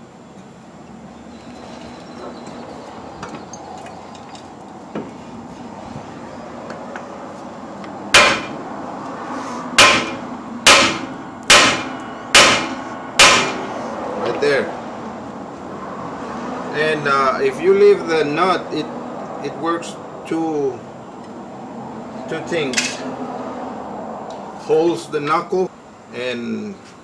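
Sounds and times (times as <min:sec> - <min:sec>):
hammer clanging on steel: 0:08.2 - 0:08.6, 0:09.8 - 0:14.0.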